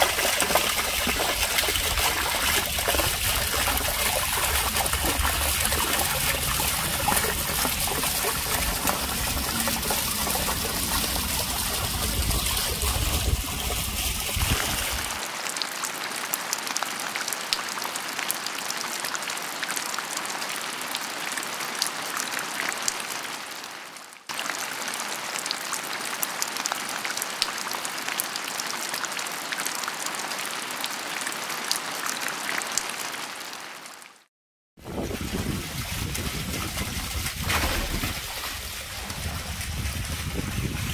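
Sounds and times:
water streaming over rock: 0.0s - 15.8s, 34.8s - 40.9s
deep rumble: 2.1s - 15.2s.

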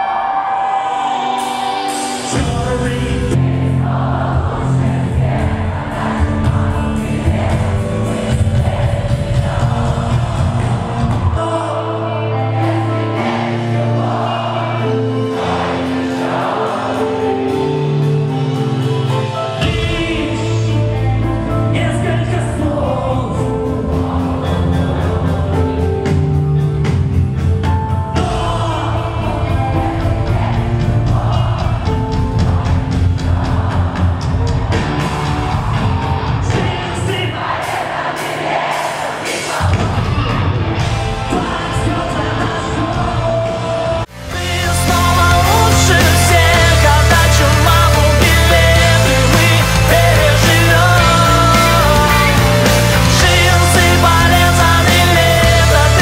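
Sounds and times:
person singing: 0.0s - 3.6s, 4.4s - 27.1s, 27.7s - 30.6s, 41.1s - 56.0s
deep bass: 2.4s - 11.4s, 39.7s - 56.0s.

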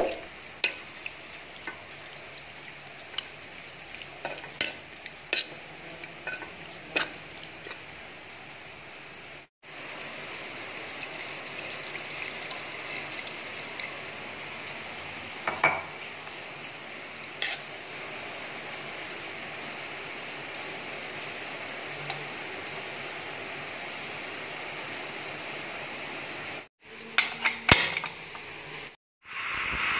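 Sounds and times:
pot hissing on stove: 28.7s - 29.9s.

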